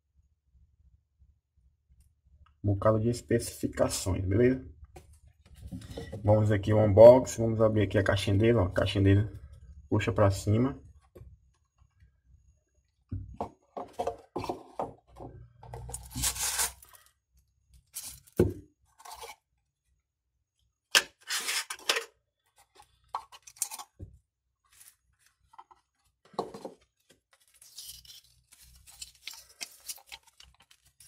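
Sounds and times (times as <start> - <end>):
cardboard and paper rustling: 24.6 - 31.0.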